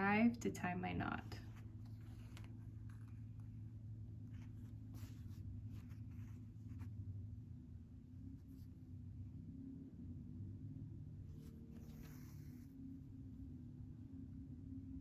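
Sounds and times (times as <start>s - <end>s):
steady low hum: 0.0s - 15.0s
thread drawn through fabric: 1.3s - 3.6s, 4.2s - 7.0s, 11.3s - 13.0s.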